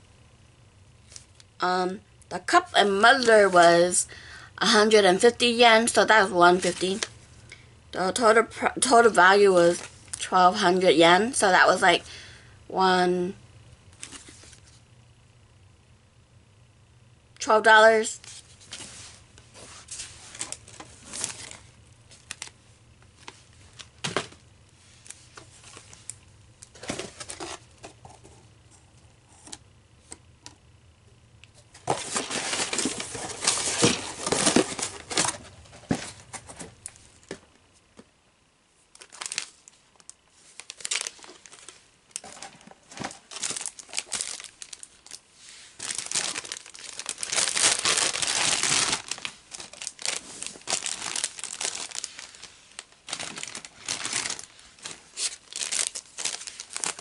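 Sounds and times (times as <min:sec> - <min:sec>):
plastic packaging crinkling: 0:19.8 - 0:22.6, 0:25.0 - 0:28.1, 0:31.8 - 0:37.0, 0:39.0 - 0:57.0
packaging being torn open: 0:39.0 - 0:39.5, 0:40.6 - 0:41.6, 0:43.3 - 0:45.2, 0:45.8 - 0:57.0.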